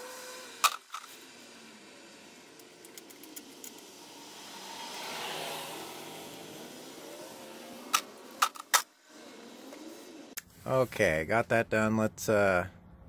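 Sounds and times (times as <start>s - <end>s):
vehicle passing: 1.3s - 10.4s.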